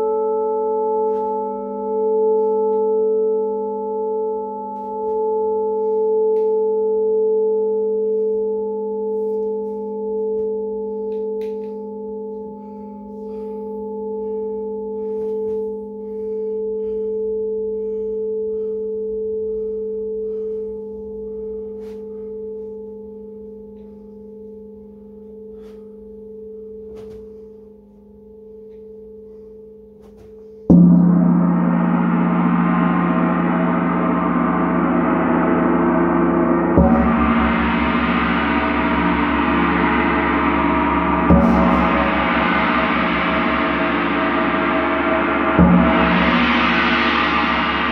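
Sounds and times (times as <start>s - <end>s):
lingering metallic ring: 0.0s - 47.9s
gong struck with soft mallet: 30.7s - 47.9s.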